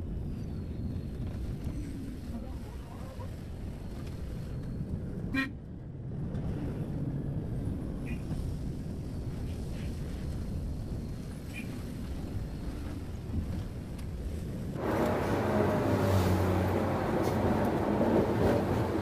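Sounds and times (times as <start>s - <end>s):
road noise inside bus: 3.9s - 19.0s.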